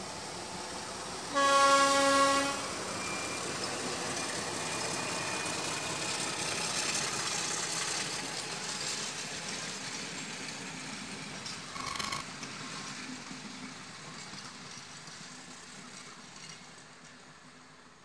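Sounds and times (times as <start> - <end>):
train passing on rails: 0.0 - 18.0
locomotive horn blast: 1.3 - 2.8.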